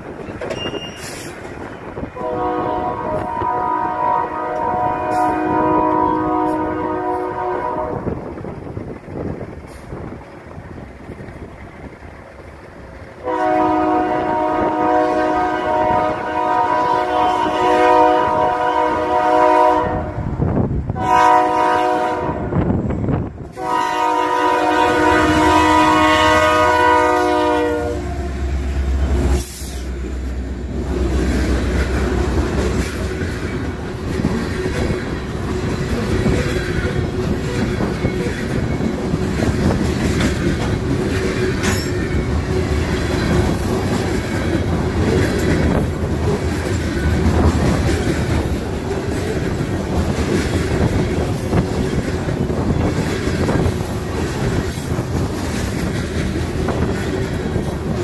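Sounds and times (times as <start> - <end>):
train wheels clacking on rails: 0.0 - 3.7, 22.6 - 58.0
train horn blasts: 2.1 - 8.2, 13.2 - 28.5.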